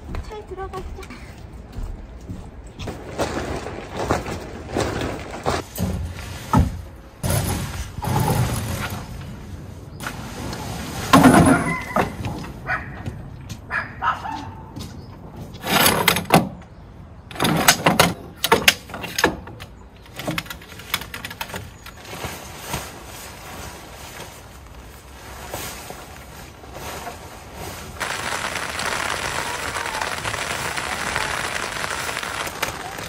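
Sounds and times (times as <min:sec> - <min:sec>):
steady rain: 0:28.0 - 0:33.0.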